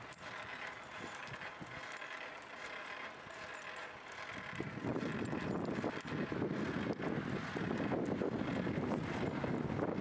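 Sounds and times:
light metallic clinks: 0:00.0 - 0:07.2
bicycle riding noise: 0:00.0 - 0:10.0.

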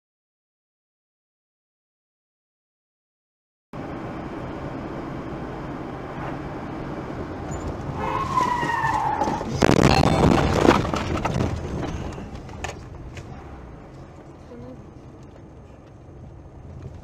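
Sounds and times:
tyres squealing: 0:07.5 - 0:10.8
tyres sliding on dirt: 0:07.5 - 0:14.3.

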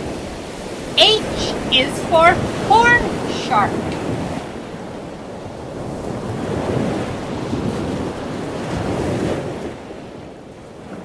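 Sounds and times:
rushing surf-like water: 0:00.0 - 0:11.0.

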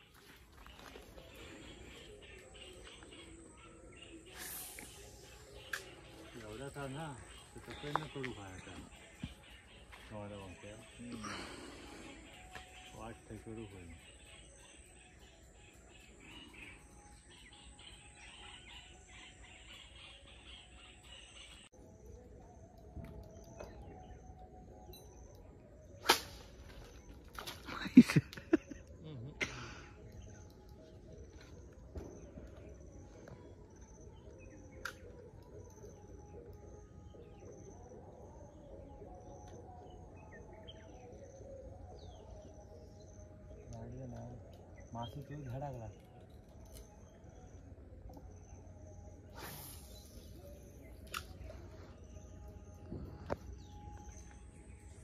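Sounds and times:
high insect drone: 0:00.0 - 0:23.0
birds chirping: 0:00.0 - 0:55.0.

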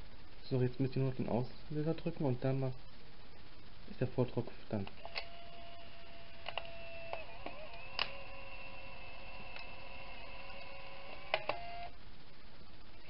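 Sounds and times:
camera motor whine: 0:05.0 - 0:12.0.

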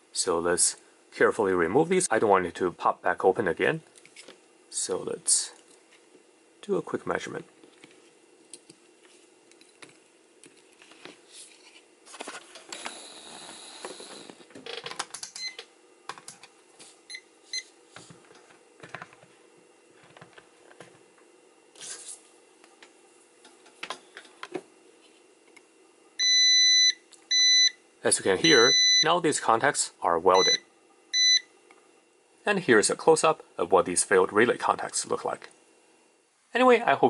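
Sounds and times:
faint steady hum: 0:00.0 - 0:37.0
clicks and rustles of handling: 0:20.0 - 0:21.0
multimeter continuity beep: 0:26.2 - 0:27.8, 0:28.4 - 0:29.2, 0:30.3 - 0:31.5.

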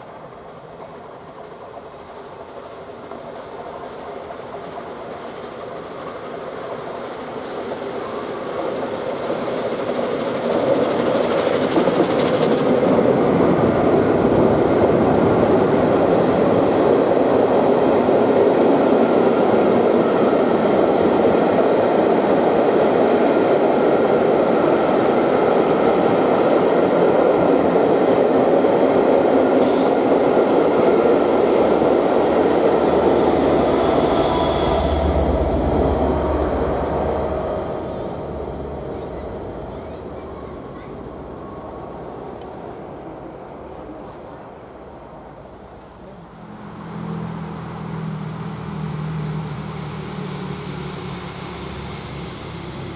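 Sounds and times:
coach wheels rumbling on rails: 0:00.0 - 0:52.9
steam locomotive passing: 0:00.0 - 0:52.9
high wheel squeals: 0:32.7 - 0:42.4.

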